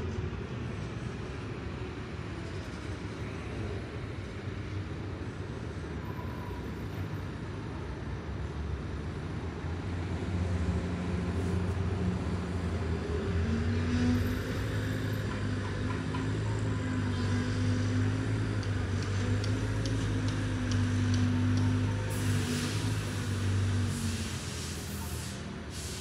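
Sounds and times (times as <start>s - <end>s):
vehicle engine humming: 10.4s - 25.7s.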